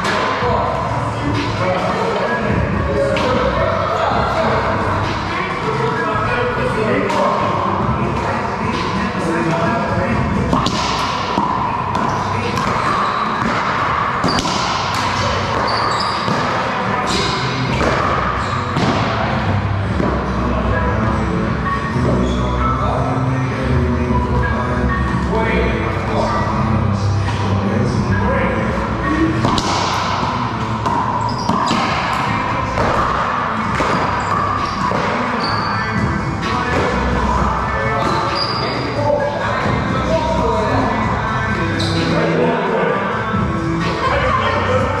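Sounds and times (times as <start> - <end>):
indoor gym hall noise: 0.0 - 45.0
ball bouncing on court: 10.5 - 19.2, 29.4 - 35.7
high squeaks: 10.6 - 18.8, 21.6 - 22.8, 30.6 - 39.2.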